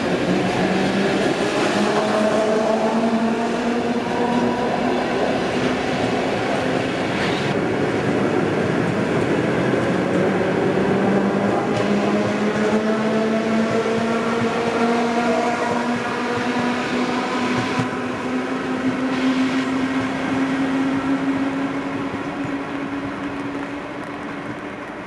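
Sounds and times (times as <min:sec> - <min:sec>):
wheels on rails: 0:00.0 - 0:25.0
train traction motors whining: 0:08.8 - 0:25.0.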